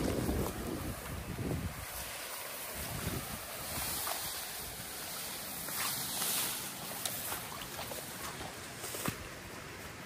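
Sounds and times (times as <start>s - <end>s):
river water rushing: 0.0s - 10.0s.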